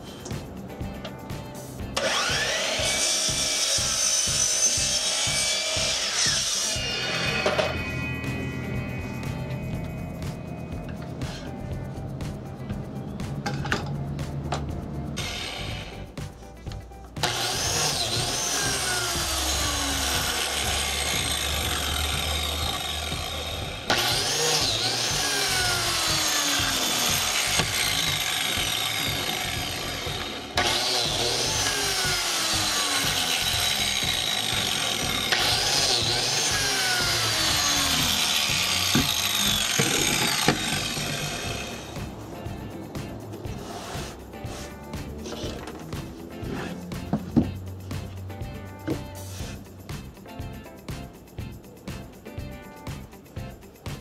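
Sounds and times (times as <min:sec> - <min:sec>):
biscuit joiner cutting wood: 0:02.0 - 0:08.6, 0:15.2 - 0:16.1, 0:17.2 - 0:42.2, 0:43.5 - 0:47.5.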